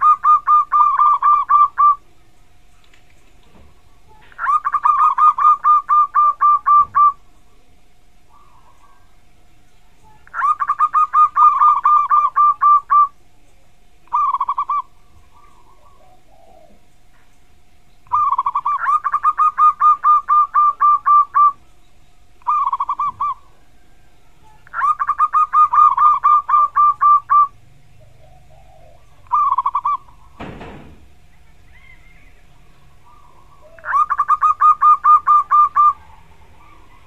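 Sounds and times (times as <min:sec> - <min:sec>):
dove cooing: 0:00.0 - 0:02.2, 0:03.5 - 0:17.2, 0:18.0 - 0:21.8, 0:22.4 - 0:37.0
faint hum: 0:00.0 - 0:37.0
dull thump: 0:30.4 - 0:31.1.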